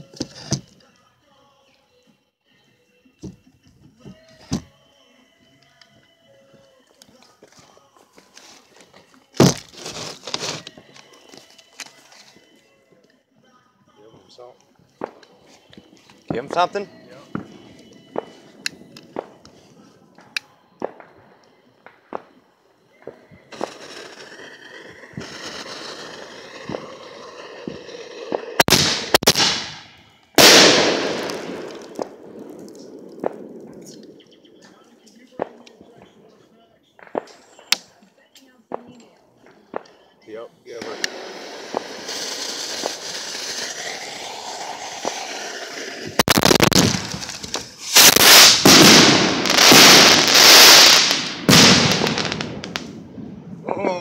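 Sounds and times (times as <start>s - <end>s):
fireworks fizzing hiss: 9.4s - 10.7s, 23.5s - 34.1s, 40.7s - 53.0s
firework bangs: 15.0s - 34.3s, 37.0s - 37.7s, 40.7s - 53.7s
loud firework blast: 23.5s - 34.0s, 40.8s - 53.7s.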